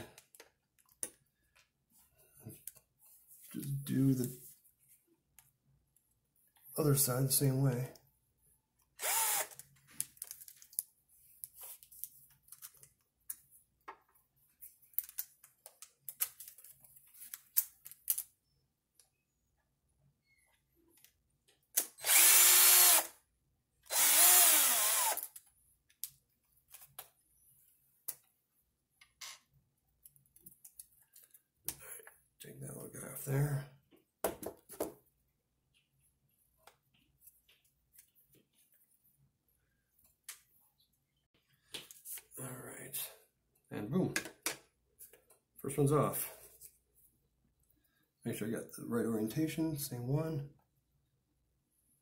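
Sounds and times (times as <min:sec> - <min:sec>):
power driver motor whine: 0:09.0 - 0:09.5, 0:22.0 - 0:23.1, 0:23.9 - 0:25.2
small parts and screws clicking: 0:09.0 - 0:13.4, 0:14.9 - 0:18.4.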